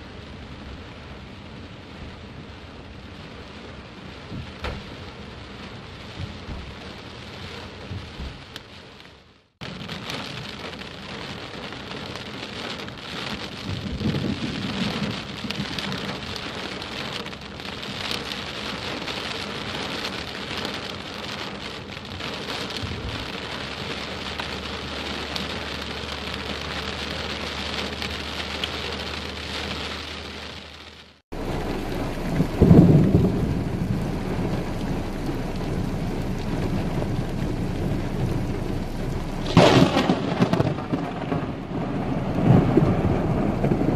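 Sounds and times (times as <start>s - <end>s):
heavy rain on car roof: 0.0s - 43.9s
thunder rumble: 13.3s - 17.1s, 31.3s - 43.9s.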